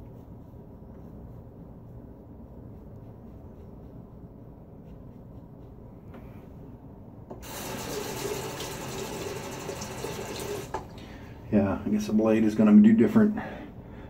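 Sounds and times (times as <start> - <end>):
tap water running into basin: 7.4 - 11.0.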